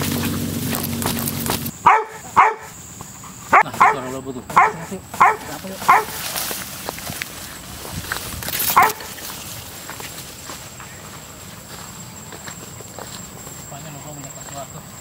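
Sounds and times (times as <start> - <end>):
dog barking: 1.8 - 2.8, 3.5 - 6.2, 8.7 - 9.1.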